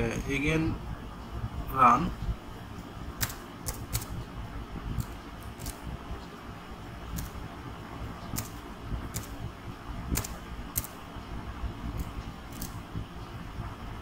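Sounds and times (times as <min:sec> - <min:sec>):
low background hum: 0:00.0 - 0:14.0
keyboard keys clicking: 0:03.2 - 0:04.1.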